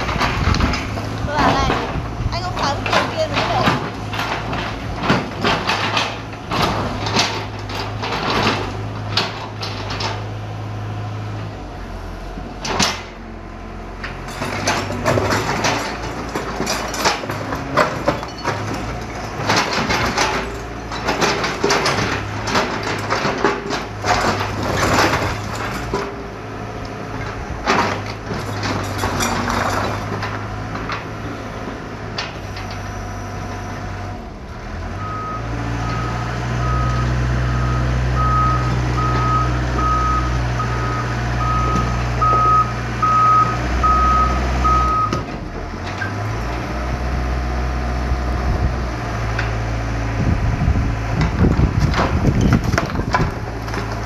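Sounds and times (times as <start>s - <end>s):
rubble crashing and clattering: 0.0s - 10.4s, 14.0s - 31.2s, 51.2s - 54.0s
excavator diesel engine running: 0.0s - 54.0s.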